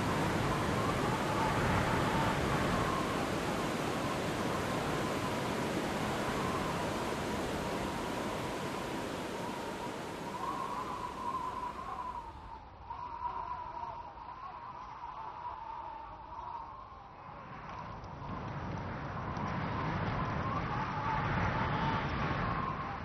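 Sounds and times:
rushing ambient noise: 0:00.0 - 0:12.7
faint wavering whistle: 0:00.0 - 0:14.6.

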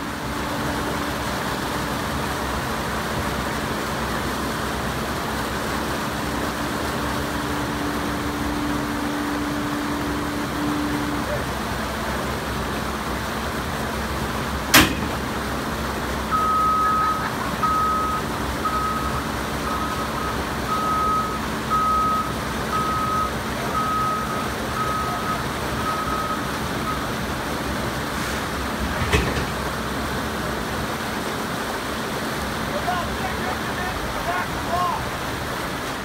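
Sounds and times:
steady engine: 0:00.0 - 0:36.0
stream rushing: 0:00.0 - 0:36.0
sharp knock: 0:14.7 - 0:15.2
backup alarm beeping: 0:16.3 - 0:27.2.

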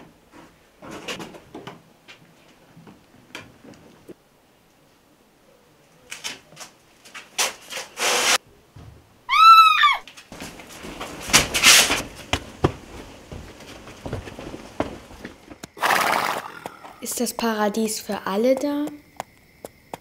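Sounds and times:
scuffling and knocking: 0:10.1 - 0:15.8
cloth rustling and scraping: 0:10.3 - 0:15.6.

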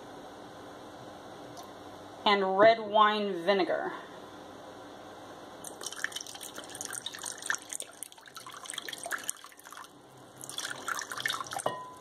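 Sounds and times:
liquid trickling into bowl: 0:05.6 - 0:11.8.

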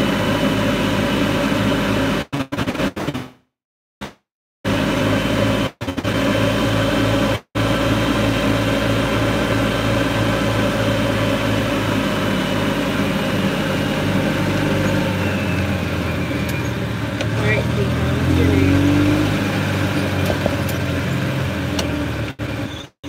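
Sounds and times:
golf cart running: 0:07.6 - 0:22.8.

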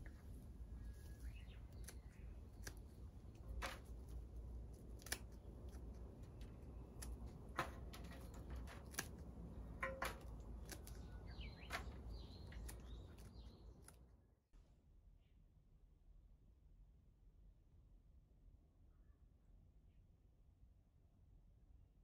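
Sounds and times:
pruning shears snipping stems: 0:00.0 - 0:14.0.

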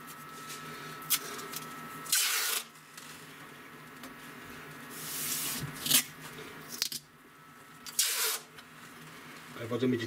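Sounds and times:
masking tape ripping off roll: 0:02.1 - 0:02.7, 0:07.9 - 0:08.5.

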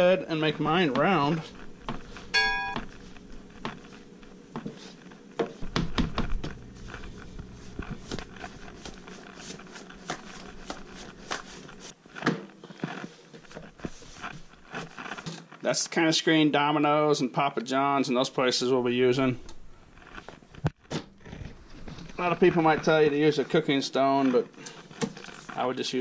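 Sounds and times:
hands stretching dough on board: 0:00.8 - 0:15.3
low rumble of handling: 0:02.9 - 0:12.0.

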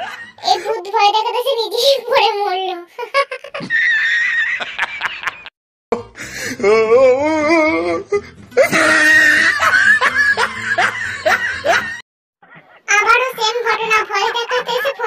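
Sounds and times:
laughter: 0:00.0 - 0:00.8, 0:02.9 - 0:05.5, 0:08.6 - 0:12.8, 0:14.2 - 0:15.0
voices: 0:12.4 - 0:15.0.

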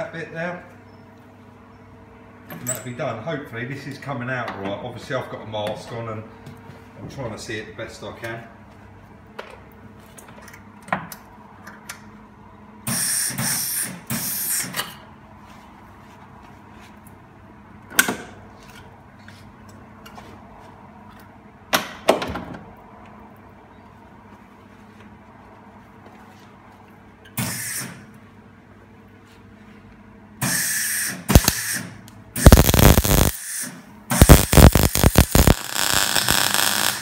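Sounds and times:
mig welder bursts: 0:30.4 - 0:37.0.

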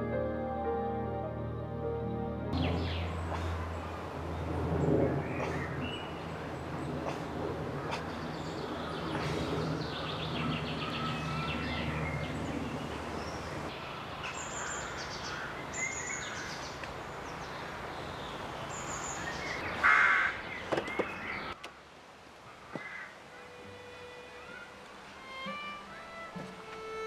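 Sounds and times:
birds chirping and trilling: 0:01.8 - 0:07.2, 0:07.8 - 0:21.6
outdoor background hum: 0:02.5 - 0:17.9.

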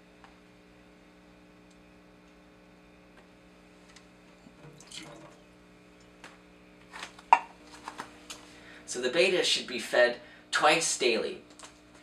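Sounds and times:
steady low hum: 0:00.0 - 0:12.0
water dripping and trickling: 0:04.6 - 0:05.4.

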